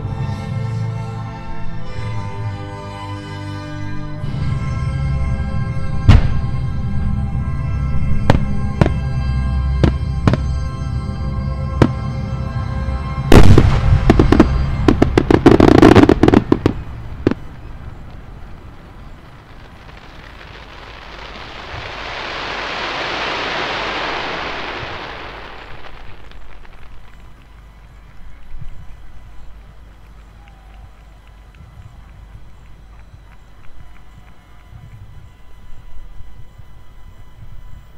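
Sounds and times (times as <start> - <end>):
background music: 0.0 - 16.6
long wash of noise: 8.4 - 36.4
sharp crackling: 13.0 - 37.4
firework shell bursting: 13.3 - 17.4.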